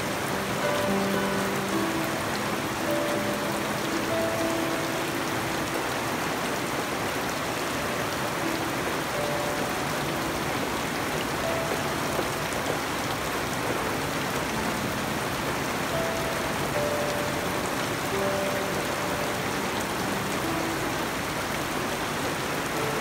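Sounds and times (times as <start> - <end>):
rain falling on foliage: 0.0 - 23.0.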